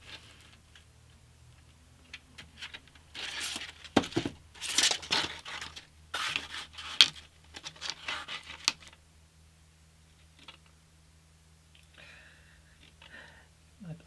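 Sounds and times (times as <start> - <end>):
sandpaper rustling and scraping: 4.6 - 8.7.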